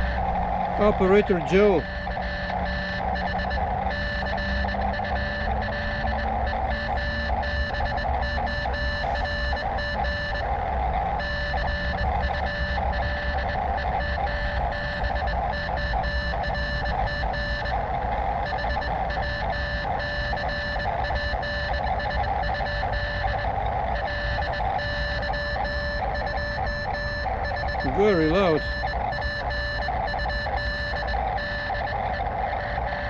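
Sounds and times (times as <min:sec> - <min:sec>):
radio whistling tones: 0:00.0 - 0:10.4, 0:18.6 - 0:33.0
rapid irregular radio beeping: 0:00.0 - 0:33.0.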